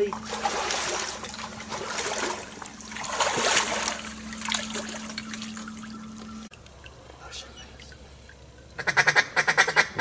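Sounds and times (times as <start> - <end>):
water sloshing around wading legs: 0.0 - 8.8.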